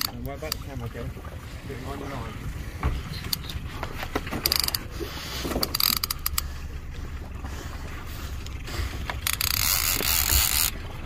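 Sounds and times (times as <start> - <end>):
steady low rumble: 0.0 - 11.0
fishing reel ratchet clicking: 4.4 - 4.8, 5.6 - 6.4, 9.2 - 10.8.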